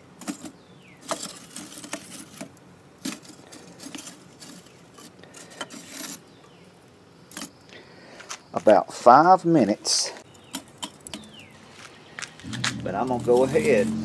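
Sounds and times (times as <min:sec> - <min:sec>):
charcoal chunks clinking: 0:00.2 - 0:06.6, 0:10.2 - 0:13.8
charcoal scraping and rubbing: 0:00.2 - 0:06.6, 0:10.2 - 0:14.0.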